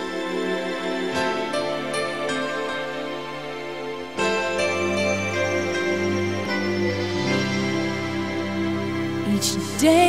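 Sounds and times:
soft music of held chords: 0:00.0 - 0:10.0
person singing: 0:09.2 - 0:10.0.

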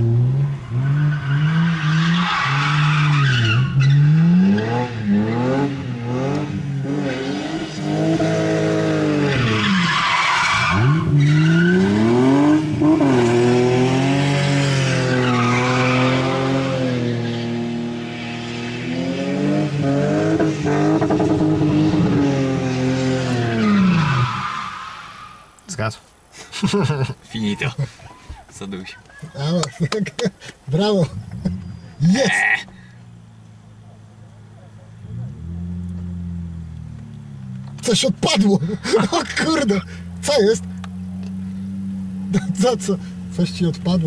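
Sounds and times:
car engine revving: 0:00.0 - 0:24.4, 0:30.8 - 0:44.0
tyre screeching: 0:00.7 - 0:05.6, 0:08.6 - 0:13.3, 0:14.6 - 0:17.5, 0:30.5 - 0:32.9.

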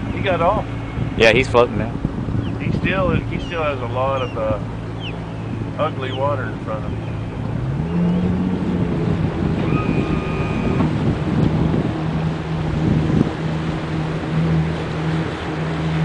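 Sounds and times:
boat motor droning: 0:00.0 - 0:16.0
water rushing along hull: 0:00.0 - 0:16.0
wind noise on microphone: 0:00.0 - 0:16.0.

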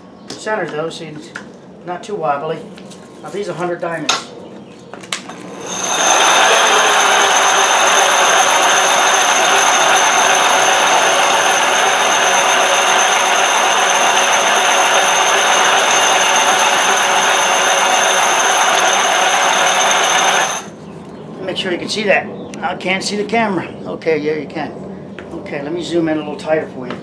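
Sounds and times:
concrete grinder motor whine: 0:05.2 - 0:20.8
grinding hiss on concrete: 0:05.4 - 0:20.7.

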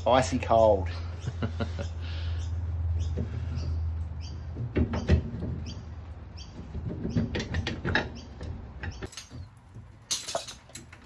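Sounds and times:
metal clinks and scrapes: 0:08.9 - 0:11.0.

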